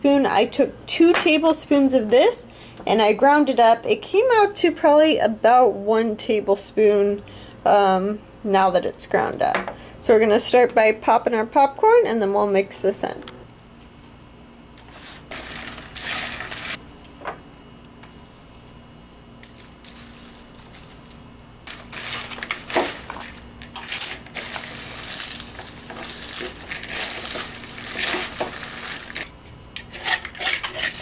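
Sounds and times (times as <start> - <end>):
popcorn rustling in plastic bowl: 15.2 - 16.8, 19.4 - 29.4.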